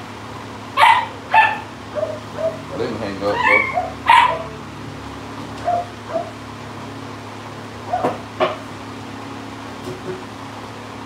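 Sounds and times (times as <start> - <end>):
dog barking: 0.8 - 2.8, 3.4 - 4.6, 5.6 - 6.4, 7.9 - 8.2.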